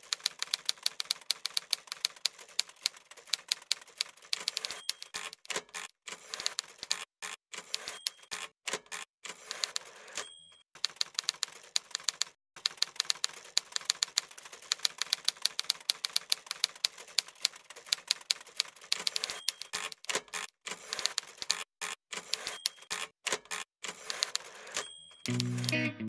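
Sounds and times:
typewriter keys clacking: 0.0 - 10.2, 10.8 - 25.8
typewriter bell ding: 4.4 - 5.3, 7.7 - 8.5, 10.0 - 10.6, 19.0 - 19.9, 22.3 - 23.1, 24.4 - 25.9.

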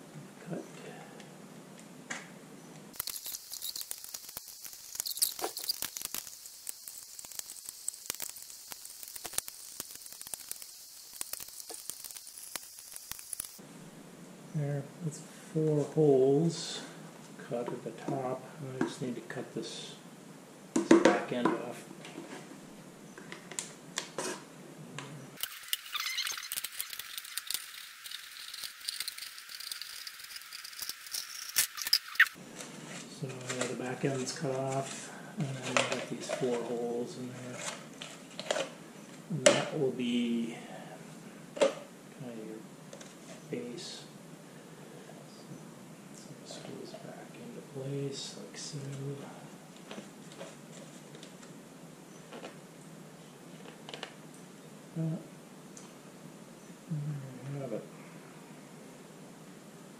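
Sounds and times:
plastic crinkling: 3.0 - 13.6, 25.4 - 35.0.

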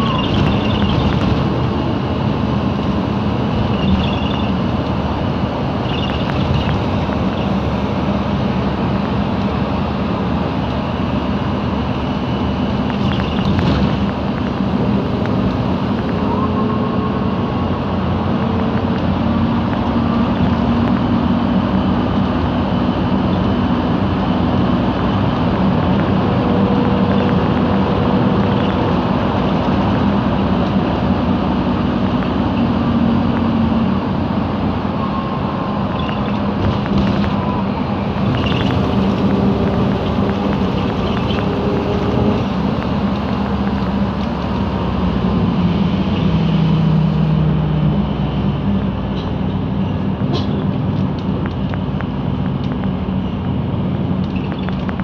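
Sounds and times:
bus engine running: 0.0 - 55.0
road rumble: 0.0 - 55.0
faint gearbox whine: 3.6 - 4.6.

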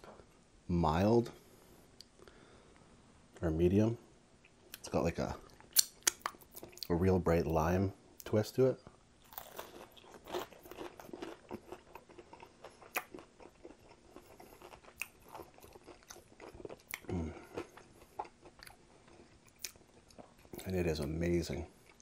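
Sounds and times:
crunchy fried chicken chewing: 9.2 - 20.6.

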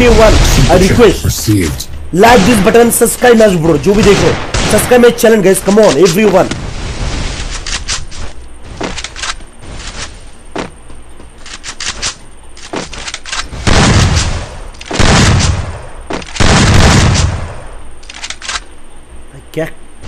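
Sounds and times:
loud blasts with deep boom: 0.0 - 7.5, 13.5 - 17.8
video game gunshots: 0.0 - 7.9, 12.7 - 17.8.

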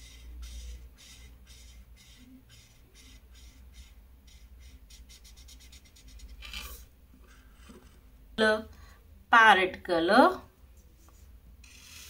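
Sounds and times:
marker scribbling on paper: 0.0 - 6.8, 11.6 - 12.0.

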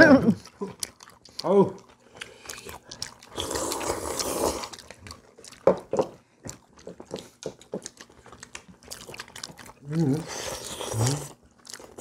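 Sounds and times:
chewing: 0.2 - 12.0
person slurping noodles: 2.2 - 4.8, 10.0 - 11.4.

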